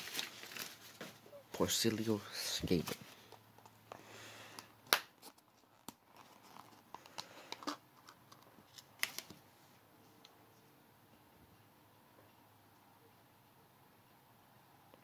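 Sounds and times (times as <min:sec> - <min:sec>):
plastic rustling: 0:00.0 - 0:01.9.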